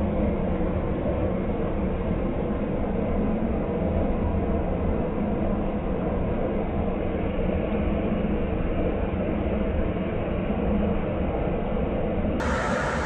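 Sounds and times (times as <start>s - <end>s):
auger discharging grain: 12.4s - 13.0s
combine harvester running: 12.4s - 13.0s.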